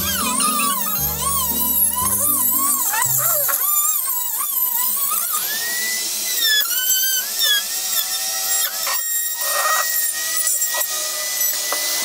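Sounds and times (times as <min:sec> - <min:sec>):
rotary tool grinding high whine: 0:00.0 - 0:12.0.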